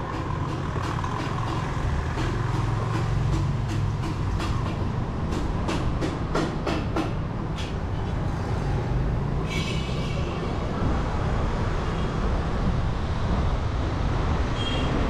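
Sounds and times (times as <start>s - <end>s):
street traffic rumble: 0.0s - 15.0s.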